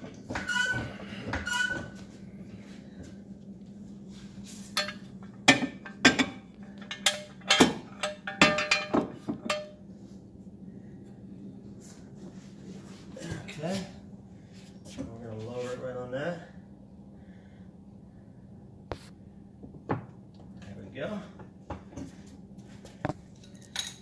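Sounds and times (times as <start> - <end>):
floor jack squeaking: 0.2 - 2.0
metal tools clinking: 5.8 - 9.8, 23.4 - 24.0.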